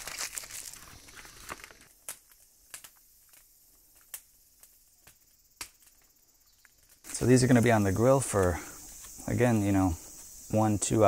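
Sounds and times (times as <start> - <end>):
aluminium foil crinkling: 0.0 - 4.2.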